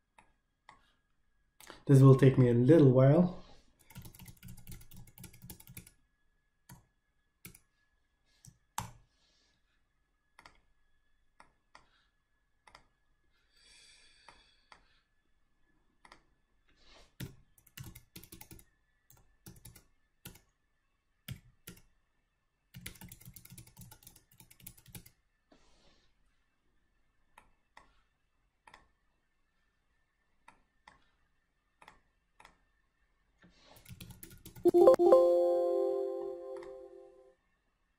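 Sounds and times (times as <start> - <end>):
keyboard typing: 3.8 - 6.0, 17.2 - 18.6, 19.5 - 20.4, 22.8 - 25.1, 33.8 - 37.0.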